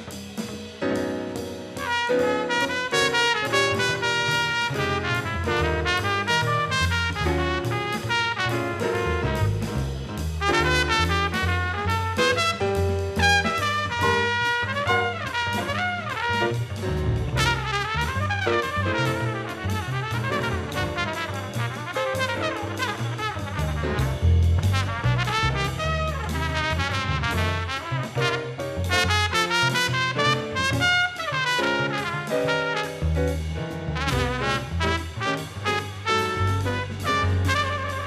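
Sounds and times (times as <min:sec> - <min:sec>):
double bass: 0:00.0 - 0:38.0
drum kit with cymbals: 0:00.0 - 0:38.0
grand piano: 0:00.0 - 0:38.0
trumpet soloing: 0:01.8 - 0:38.0.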